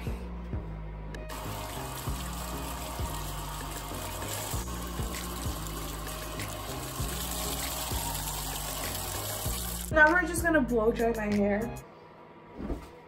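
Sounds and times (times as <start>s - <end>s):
background music: 0.0s - 11.9s
water pouring and splashing into tub: 1.3s - 9.9s.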